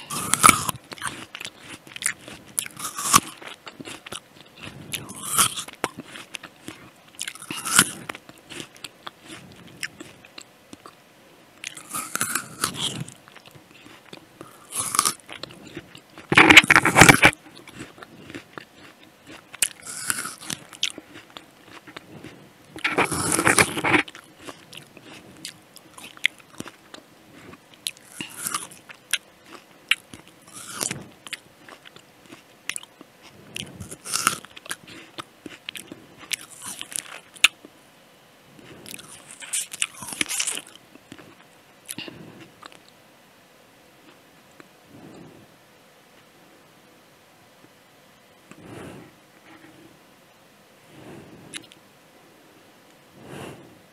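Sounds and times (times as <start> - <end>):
apple crunching bites: 0.0 - 11.0, 11.6 - 37.7, 38.8 - 42.9
chewing crackles: 0.0 - 11.0, 11.6 - 37.8, 38.6 - 43.0, 51.0 - 51.8.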